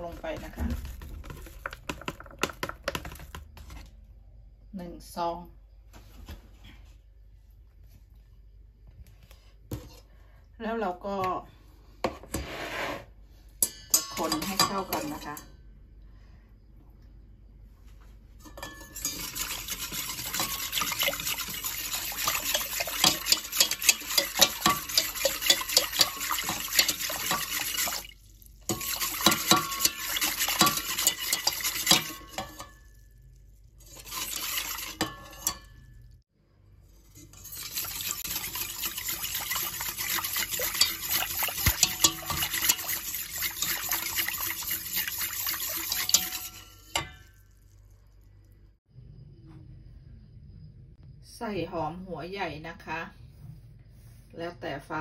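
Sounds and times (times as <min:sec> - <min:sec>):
whisk wires clicking against pot: 0:18.5 - 0:32.8, 0:37.2 - 0:47.3
liquid sloshing: 0:18.5 - 0:35.9, 0:37.0 - 0:47.9.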